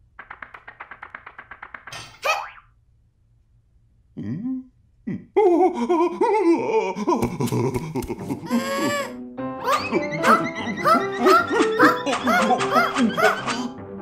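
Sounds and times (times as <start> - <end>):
cartoon character laughing: 5.4 - 13.8.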